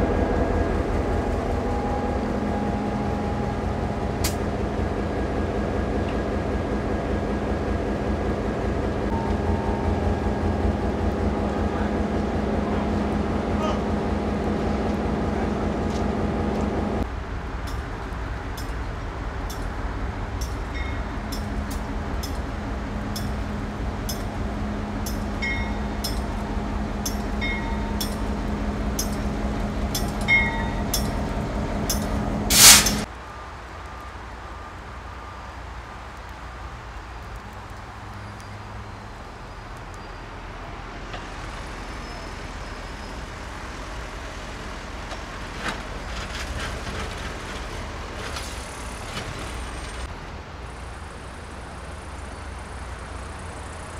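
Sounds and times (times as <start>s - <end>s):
distant machinery din: 0.0s - 18.9s, 19.5s - 33.1s
heavy machinery humming: 0.0s - 33.1s
sharp loud burst of noise: 32.5s - 33.1s.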